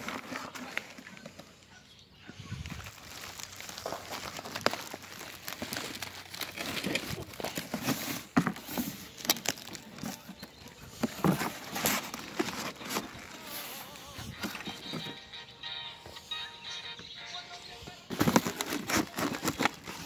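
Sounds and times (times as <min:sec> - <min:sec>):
cardboard rustling: 0:00.0 - 0:01.7, 0:02.7 - 0:15.2, 0:18.1 - 0:20.0
plastic wrapping crinkling: 0:02.7 - 0:15.2, 0:18.1 - 0:20.0.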